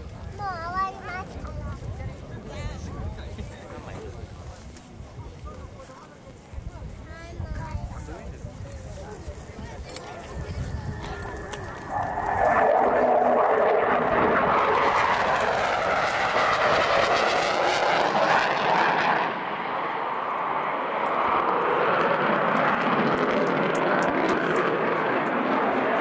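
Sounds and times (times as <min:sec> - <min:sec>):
fighter jet roaring overhead: 0:10.0 - 0:26.0.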